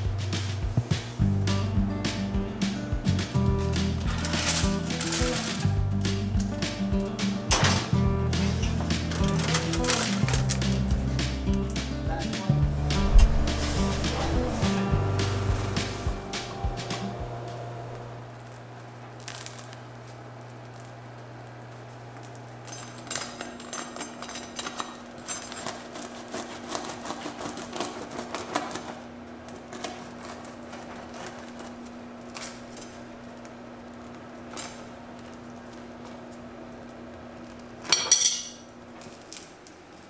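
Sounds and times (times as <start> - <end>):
low steady hum: 0.0 - 25.7
knife sawing through bread crust: 25.9 - 28.9.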